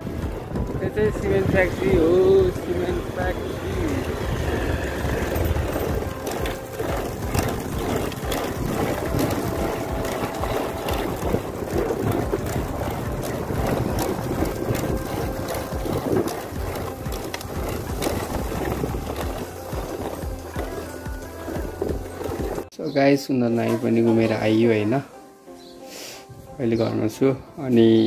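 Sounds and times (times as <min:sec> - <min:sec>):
wind buffeting the microphone: 0:00.0 - 0:22.7.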